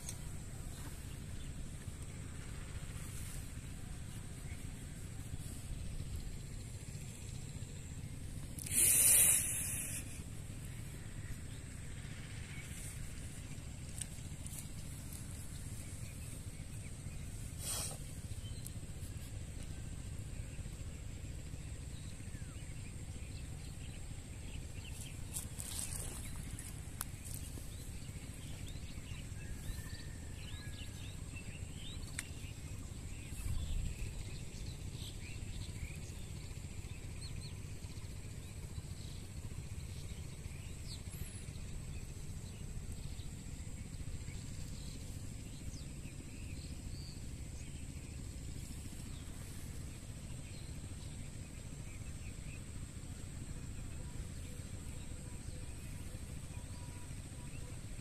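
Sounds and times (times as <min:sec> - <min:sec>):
steady high whine: 0:00.0 - 0:58.0
steady low rumble: 0:00.0 - 0:58.0
faint bird chirps: 0:02.8 - 0:58.0.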